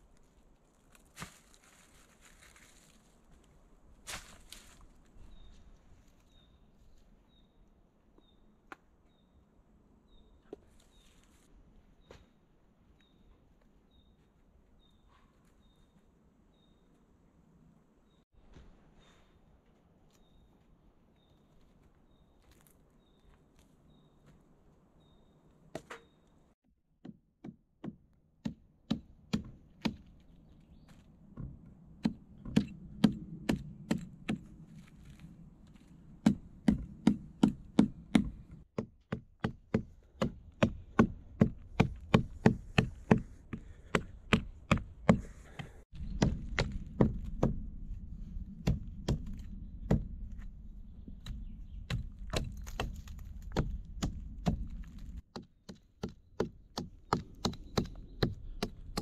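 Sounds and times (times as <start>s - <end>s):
hatchet chopping wood: 27.0s - 30.1s, 31.4s - 34.5s, 36.2s - 47.6s, 48.6s - 50.2s, 51.2s - 59.0s.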